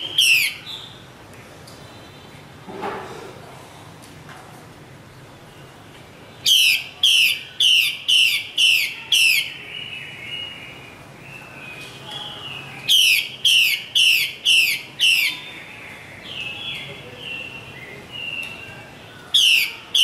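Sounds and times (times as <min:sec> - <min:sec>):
bird harsh rasping calls: 0:00.0 - 0:01.0, 0:06.4 - 0:11.0, 0:11.7 - 0:18.4, 0:19.2 - 0:20.0.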